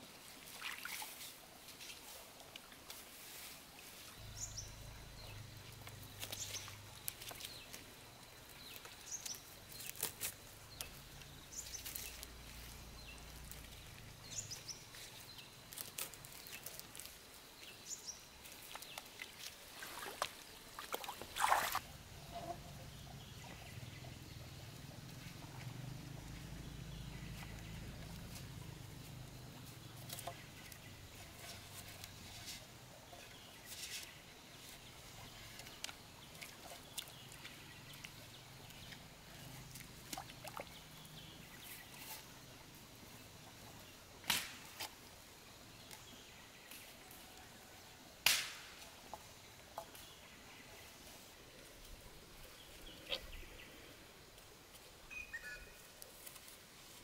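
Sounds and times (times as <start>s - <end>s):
water sloshing in shallows: 0.3s - 1.5s, 18.6s - 22.6s, 35.1s - 41.6s
bird chirping: 4.2s - 7.8s, 55.1s - 55.8s
fishing net rustling: 5.6s - 11.0s, 18.4s - 21.9s.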